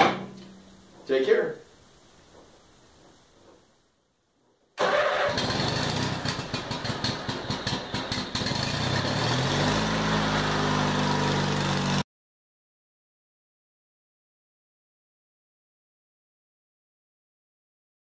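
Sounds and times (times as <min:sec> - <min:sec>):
small engine starting and running: 0:04.8 - 0:12.0.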